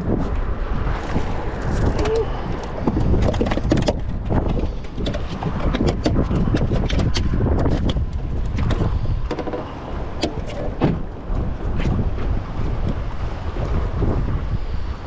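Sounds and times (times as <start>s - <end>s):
wind on microphone: 0.0s - 15.0s
fish flopping on boat deck: 1.0s - 12.4s.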